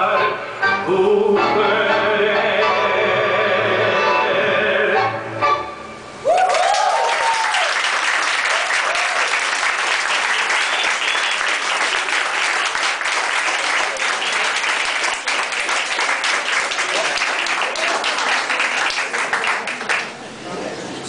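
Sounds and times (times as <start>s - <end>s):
audience applauding: 6.2s - 20.2s.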